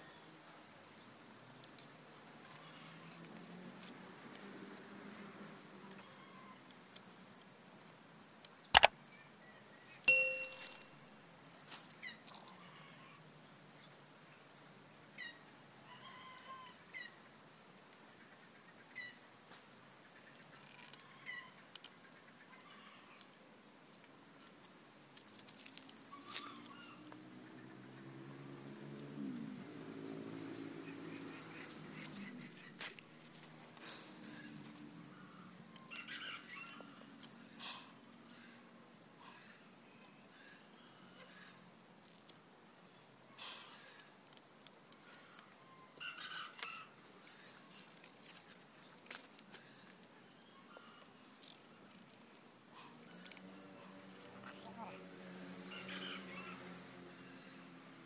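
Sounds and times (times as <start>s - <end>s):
sharp click: 8.7s - 8.9s
metallic clang: 10.1s - 11.0s.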